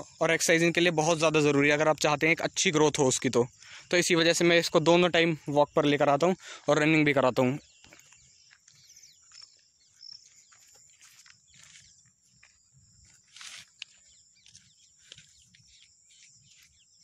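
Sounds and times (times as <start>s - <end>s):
footsteps on dirt and grass: 5.1s - 17.0s.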